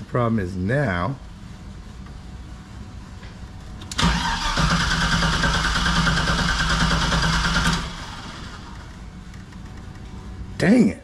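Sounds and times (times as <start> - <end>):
engine cranking on starter: 3.8 - 9.0.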